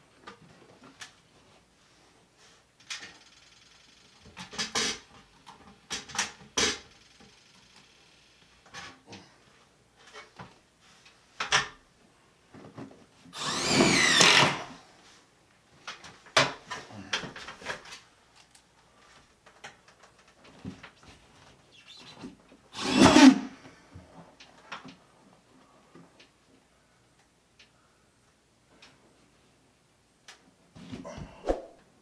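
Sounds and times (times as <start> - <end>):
cordless drill running: 13.4 - 14.8, 22.8 - 23.3.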